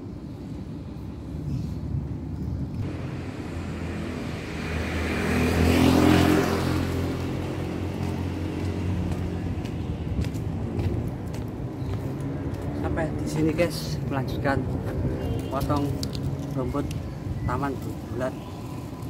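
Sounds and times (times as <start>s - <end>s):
vehicle passing: 2.8s - 17.1s.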